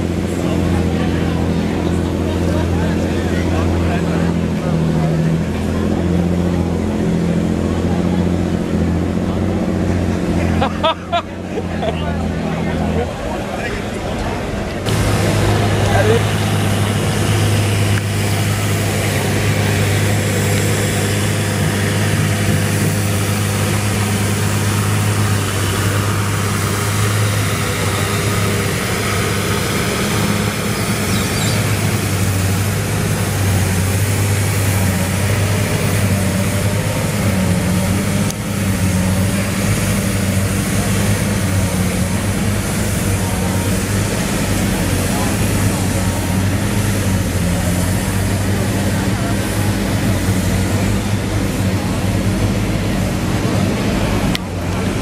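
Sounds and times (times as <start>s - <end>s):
tractor diesel engine droning: 0.0s - 55.0s.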